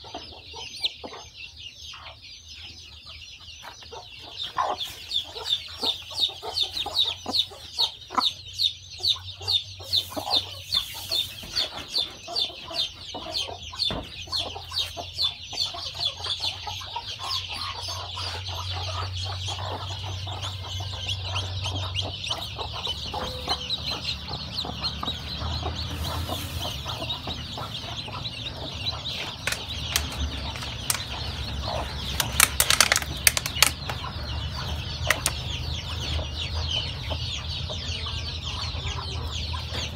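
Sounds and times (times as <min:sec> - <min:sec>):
chicks peeping: 0:00.0 - 0:39.9
sharp rustling clicks: 0:29.4 - 0:31.3, 0:32.0 - 0:34.1, 0:35.1 - 0:35.4.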